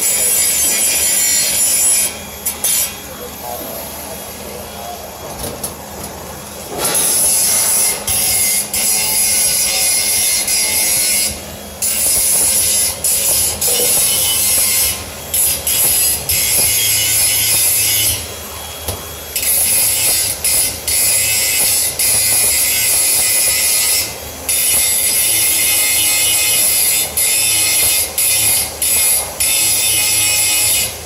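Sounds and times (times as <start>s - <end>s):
angle grinder grinding steel: 6.7s - 18.6s, 19.3s - 30.9s.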